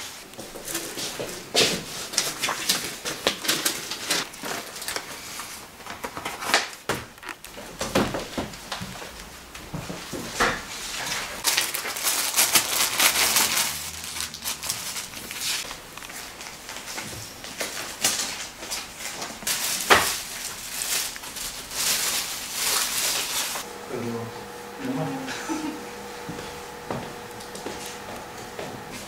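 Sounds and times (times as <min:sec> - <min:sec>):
paper pages rustling: 0:00.0 - 0:07.6, 0:10.9 - 0:23.7
plastic bags crinkling: 0:01.8 - 0:07.8, 0:11.3 - 0:23.8.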